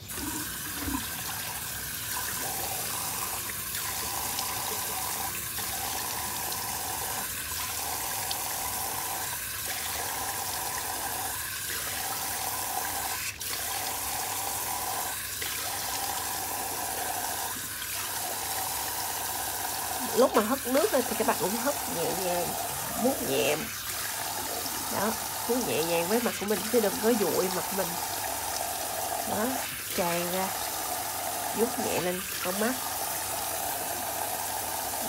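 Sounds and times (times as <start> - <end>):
face rinsed by hand: 0.0 - 35.0
tap water running into sink: 0.0 - 35.0.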